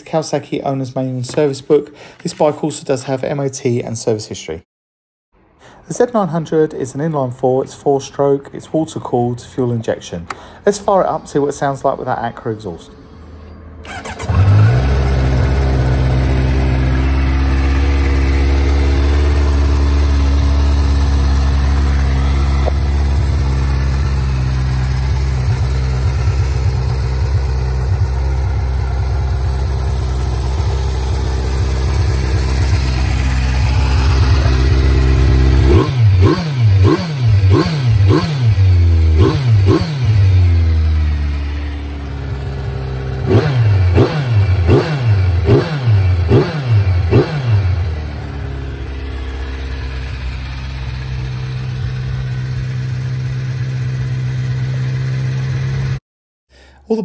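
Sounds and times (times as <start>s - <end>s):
motorcycle engine idling and revving: 13.8s - 56.0s.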